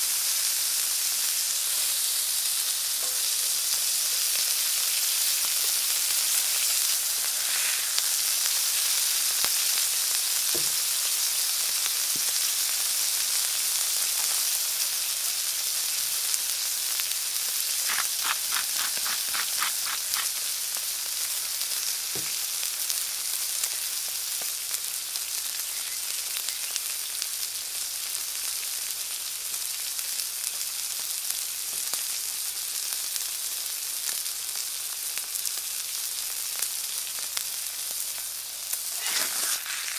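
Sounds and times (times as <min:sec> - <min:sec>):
steak sizzling on a griddle: 0:00.0 - 0:39.9
quick ticks: 0:17.9 - 0:20.3.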